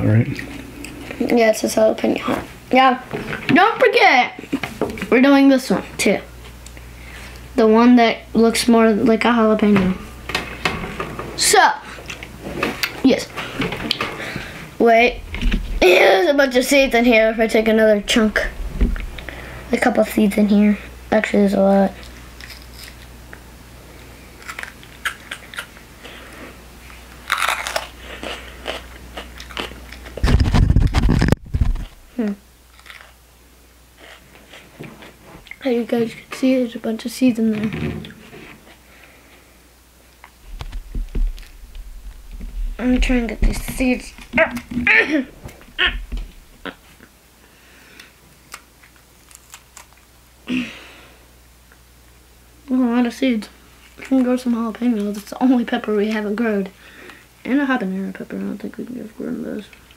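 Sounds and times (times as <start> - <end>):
loud low rumble: 15.0 - 19.7, 40.4 - 44.4
breathy exhale: 19.2 - 19.7, 50.5 - 51.3
pepper flesh crackling and snapping: 24.4 - 25.8, 27.1 - 28.0, 48.5 - 50.1.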